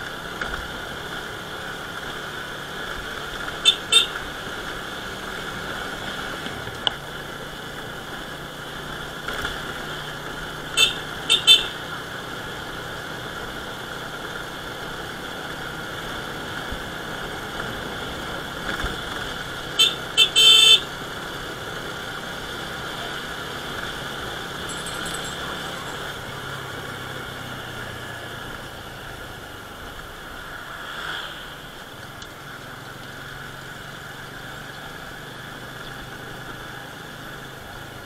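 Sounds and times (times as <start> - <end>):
motor scooter running: 0.0 - 30.6
road and wind noise: 0.0 - 38.0
horn beeping: 3.6 - 4.3, 10.7 - 11.9, 19.8 - 20.9.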